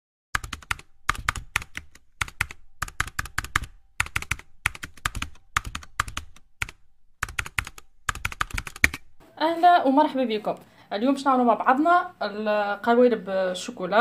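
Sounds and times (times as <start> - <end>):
computer keyboard typing: 0.4 - 9.1.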